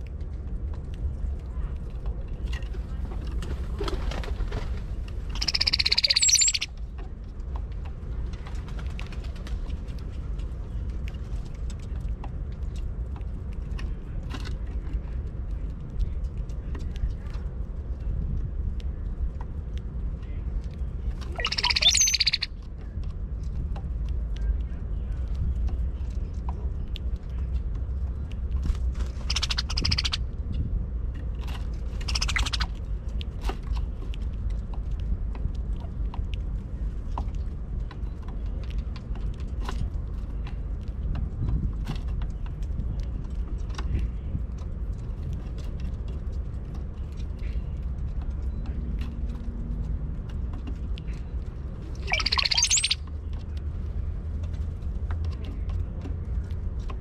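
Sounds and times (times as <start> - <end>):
birds calling: 5.3 - 6.7, 21.3 - 22.5, 29.2 - 30.2, 32.0 - 32.7, 52.0 - 53.0
gliding bird whistles: 5.4 - 6.7, 21.4 - 22.5, 52.0 - 53.0.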